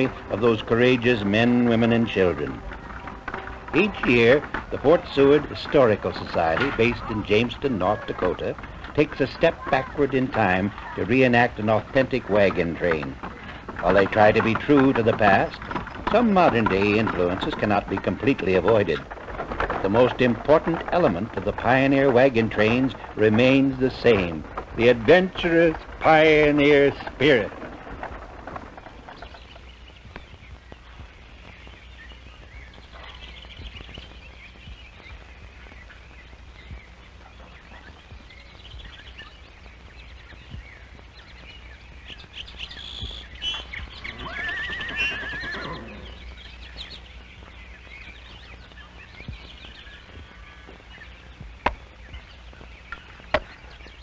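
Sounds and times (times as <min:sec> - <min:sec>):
horse whinnying: 0:44.1 - 0:46.2
steady low hum: 0:45.7 - 0:54.0.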